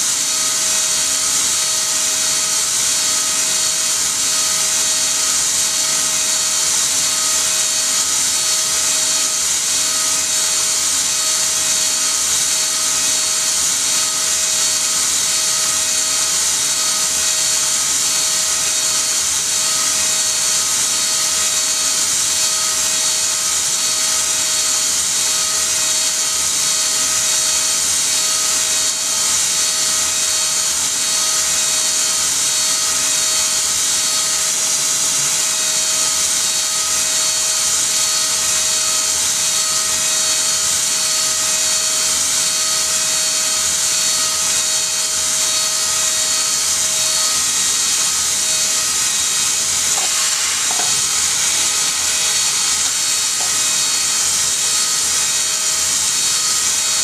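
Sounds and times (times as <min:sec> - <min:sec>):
milling spindle whine: 0:00.0 - 0:57.0.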